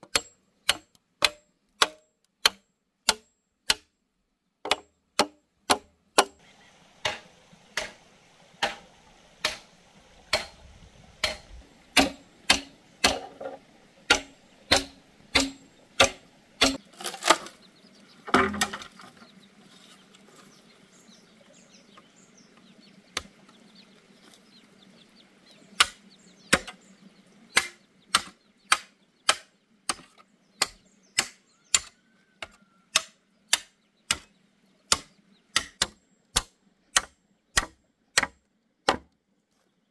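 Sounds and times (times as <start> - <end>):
machete chopping bamboo: 0.0 - 3.9, 4.6 - 6.4, 7.0 - 8.0, 8.6 - 8.8, 9.4 - 9.7, 10.3 - 10.6, 11.2 - 17.5, 25.8 - 26.8, 27.5 - 34.3, 34.9 - 39.1.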